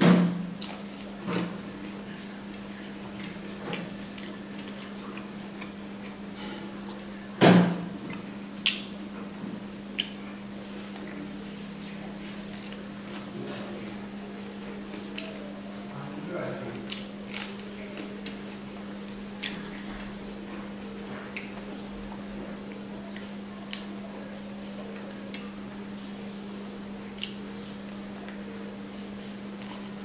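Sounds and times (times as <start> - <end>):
steady low hum: 0.0 - 30.0
chewing clicks and smacks: 3.2 - 6.2, 8.0 - 8.9, 9.9 - 11.2, 14.6 - 15.4, 16.8 - 18.4, 19.0 - 20.6, 21.3 - 21.6, 22.7 - 24.0, 27.2 - 27.4, 28.3 - 30.0.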